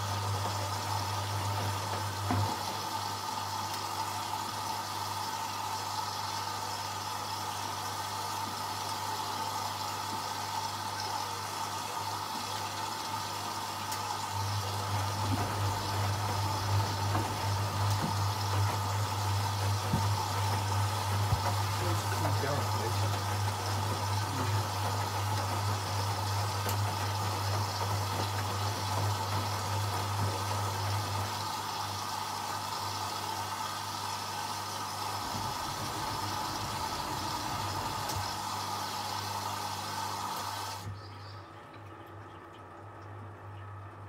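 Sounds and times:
water rushing into washing machine: 0:00.0 - 0:44.0
low hum: 0:35.1 - 0:38.6.

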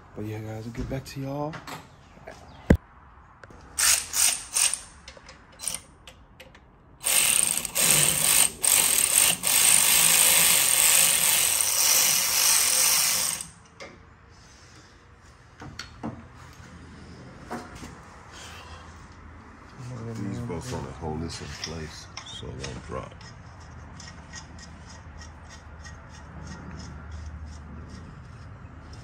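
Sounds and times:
power tool running on bolts: 0:07.0 - 0:13.6.

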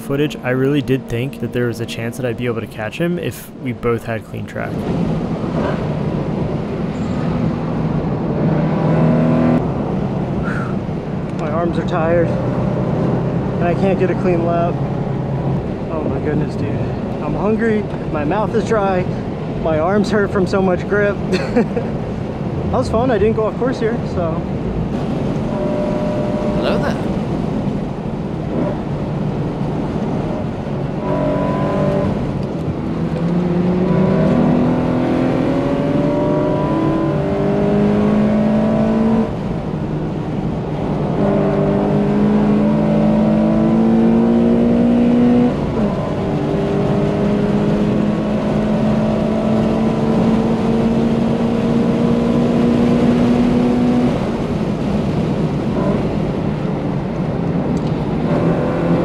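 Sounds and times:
car engine revving hard: 0:08.4 - 0:09.6, 0:33.2 - 0:39.4, 0:41.1 - 0:54.4.

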